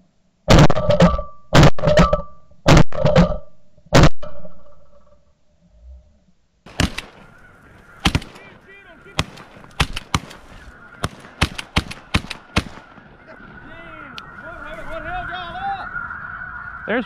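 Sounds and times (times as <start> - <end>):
shotgun report: 6.7 - 14.4
flock of geese honking: 6.7 - 17.0.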